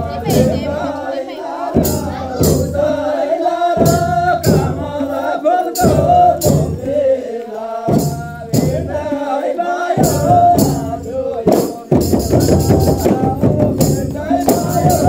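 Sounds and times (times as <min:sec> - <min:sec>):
drum strikes: 0:00.0 - 0:01.0, 0:01.7 - 0:07.2, 0:07.8 - 0:09.2, 0:09.9 - 0:15.0
jingling percussion: 0:00.0 - 0:15.0
person singing: 0:00.0 - 0:15.0.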